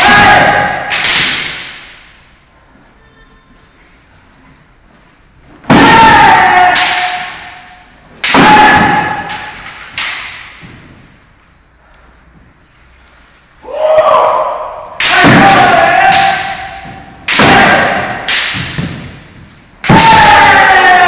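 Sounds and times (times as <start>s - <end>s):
loud hits: 5.6s - 10.6s, 15.0s - 21.0s.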